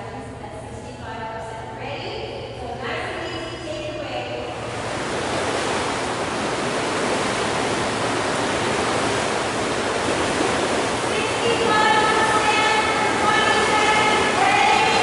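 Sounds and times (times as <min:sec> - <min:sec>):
paddles splashing through water: 0:04.6 - 0:15.0.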